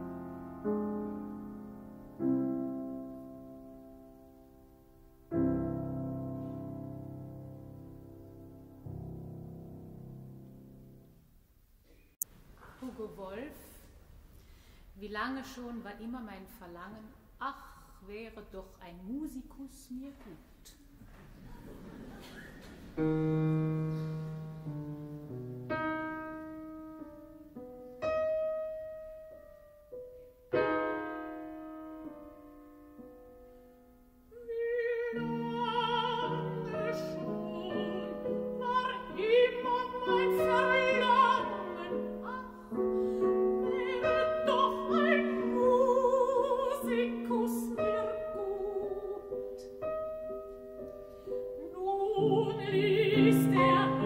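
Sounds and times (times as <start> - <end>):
piano chords: 0.0 - 11.5, 21.6 - 54.0
woman singing art song: 34.3 - 50.0, 51.5 - 54.0.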